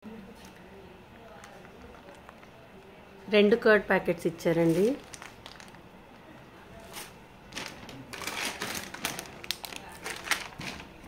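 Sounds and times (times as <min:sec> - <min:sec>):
plastic packets crinkling: 0:01.2 - 0:02.6, 0:04.6 - 0:06.2, 0:06.8 - 0:11.0.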